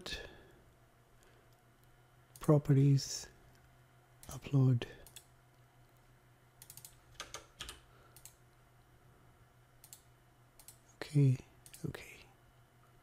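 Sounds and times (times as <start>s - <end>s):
low steady hum: 0.0s - 13.0s
computer mouse and keyboard clicks: 6.6s - 8.4s.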